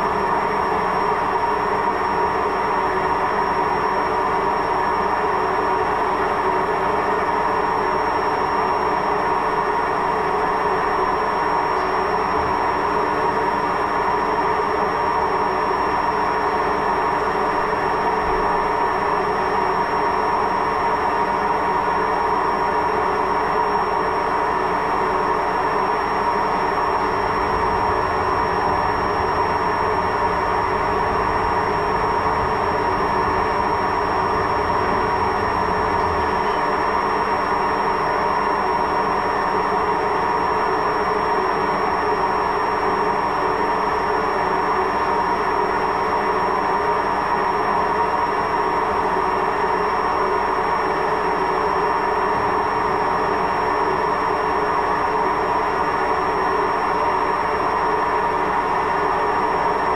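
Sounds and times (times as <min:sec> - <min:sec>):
washing machine rumbling: 0:26.8 - 0:37.4
deeper drone: 0:26.9 - 0:37.5.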